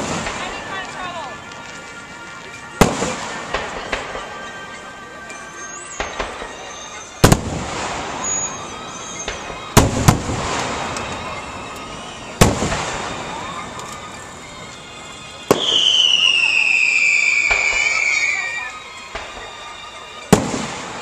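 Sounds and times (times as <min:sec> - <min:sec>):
fireworks booming: 0:00.0 - 0:01.8, 0:02.8 - 0:04.8, 0:05.6 - 0:19.7, 0:20.3 - 0:21.0
fireworks hiss: 0:00.0 - 0:21.0.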